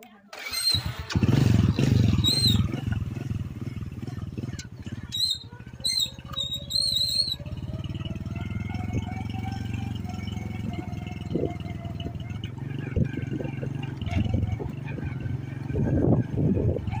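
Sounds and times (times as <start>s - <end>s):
small motorcycle engine running: 0.3s - 17.0s
short high chirps: 5.1s - 7.4s.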